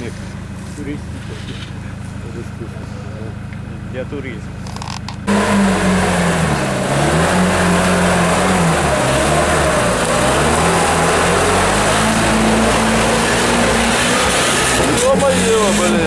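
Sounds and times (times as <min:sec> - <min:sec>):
engine revving hard: 0:05.2 - 0:16.0
tyres churning mud: 0:05.3 - 0:16.0.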